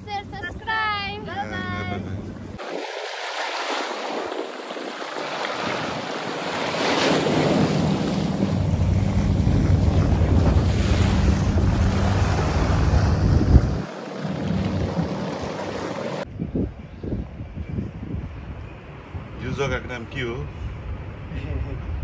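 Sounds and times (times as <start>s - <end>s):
sea waves splashing: 2.4s - 16.3s
wind noise on microphone: 3.9s - 19.9s
heavy low rumble: 7.8s - 16.1s.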